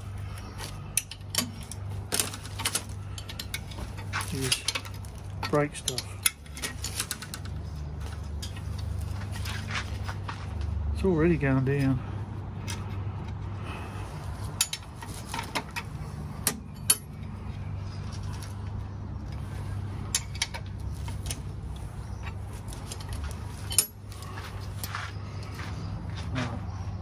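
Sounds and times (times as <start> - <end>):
steady low hum: 0.0 - 27.0
wrench clinking on metal: 14.6 - 17.2.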